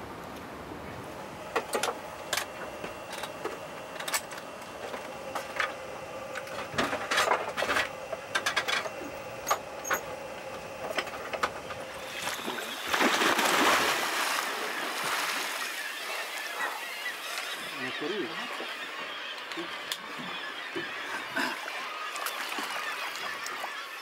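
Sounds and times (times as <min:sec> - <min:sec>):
faint steady hum: 0:00.0 - 0:23.9
water splash: 0:12.1 - 0:15.8.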